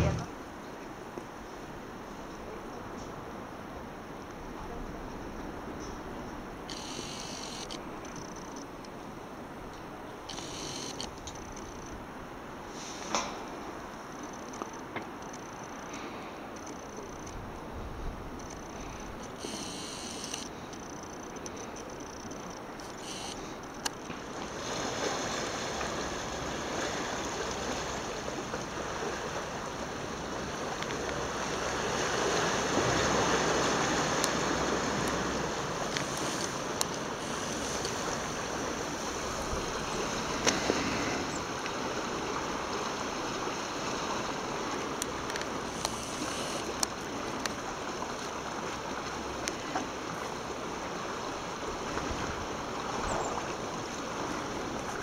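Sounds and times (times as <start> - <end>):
lake water rushing: 0.0 - 55.0
wind: 0.0 - 55.0
short clicks: 19.2 - 21.6.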